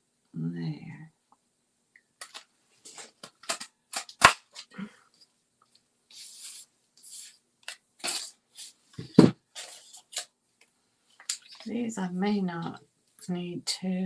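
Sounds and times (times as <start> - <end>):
paper rustling: 6.1 - 10.3, 11.2 - 11.8.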